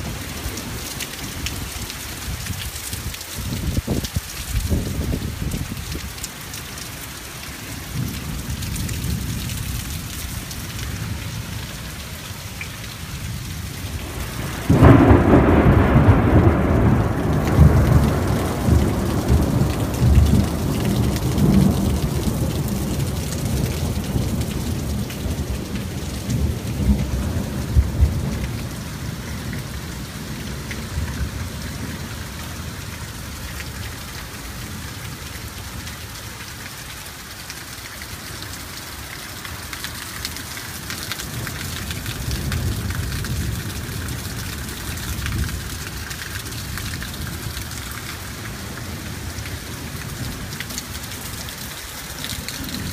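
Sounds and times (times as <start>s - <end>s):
steady rain falling: 0.0s - 52.9s
thunder clap rumbling: 14.0s - 32.1s.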